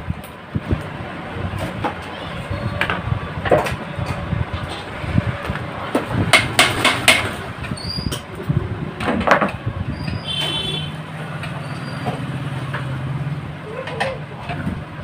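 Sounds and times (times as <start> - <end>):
sharp knocks and clicks: 5.5 - 8.3.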